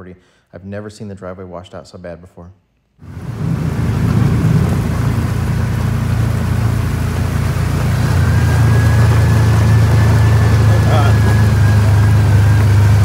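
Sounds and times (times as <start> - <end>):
faint high whine: 3.0 - 13.0
steady hiss: 3.0 - 13.0
vehicle engine humming: 3.0 - 13.0.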